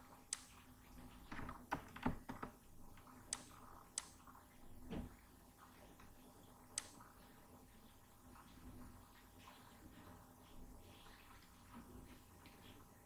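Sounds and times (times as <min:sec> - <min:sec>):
computer mouse clicking: 0:00.3 - 0:00.6, 0:01.3 - 0:04.3, 0:06.8 - 0:07.1.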